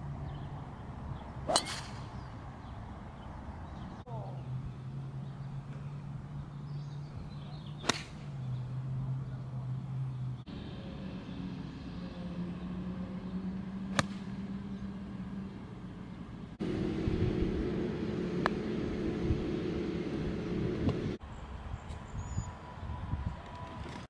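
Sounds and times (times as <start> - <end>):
low mechanical hum: 0.0 - 24.0
golf club striking ball: 1.5 - 2.3, 7.8 - 8.6, 13.9 - 14.4.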